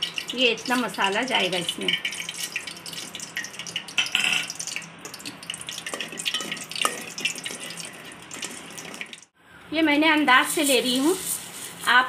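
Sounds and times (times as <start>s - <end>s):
spices sizzling in hot oil: 0.0s - 9.4s
spoon stirring in pot: 1.7s - 9.2s.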